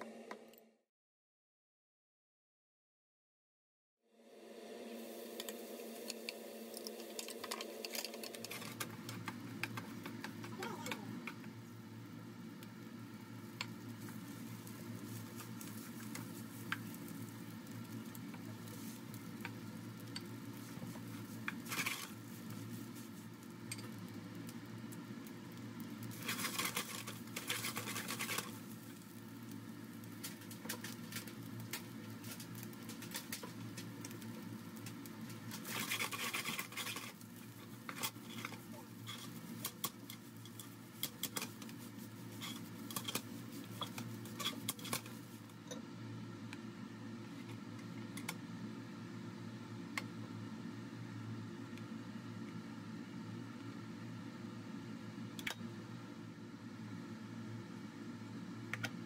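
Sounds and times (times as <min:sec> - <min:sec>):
light sizzling: 0:04.2 - 0:58.9
spatula scraping rice in pan: 0:06.9 - 0:10.0, 0:13.9 - 0:24.0, 0:26.0 - 0:45.4.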